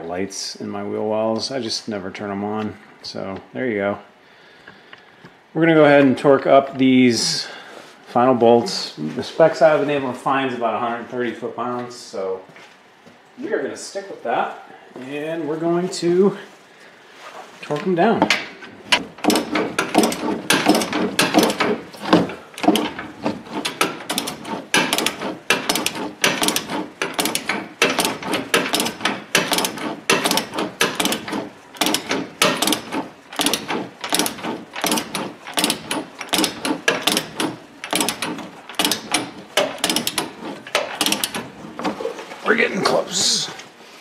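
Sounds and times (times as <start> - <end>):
ratchet wrench clicking: 18.9 - 41.5.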